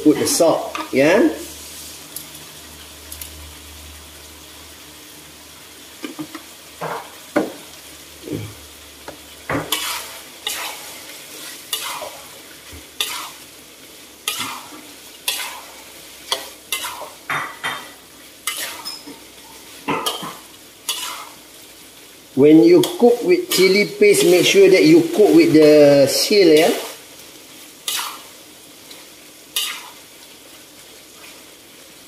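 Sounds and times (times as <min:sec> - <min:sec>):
prawns sizzling in a wok: 0:00.0 - 0:32.0
spatula scraping and knocking wok: 0:08.3 - 0:13.5, 0:14.2 - 0:21.5, 0:27.8 - 0:28.3, 0:29.5 - 0:30.0.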